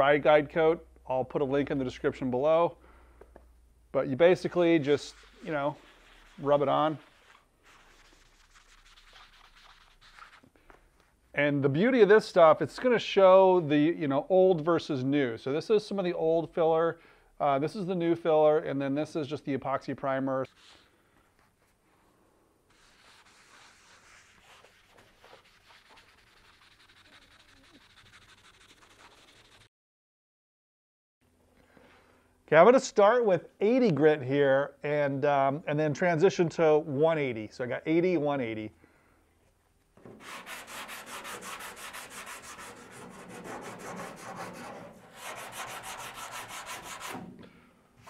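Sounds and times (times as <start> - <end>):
sanding block scratching filler: 4.6 - 10.4, 22.7 - 29.7, 40.2 - 47.3
pad scrubbing on car panel: 22.7 - 29.7, 40.2 - 47.3.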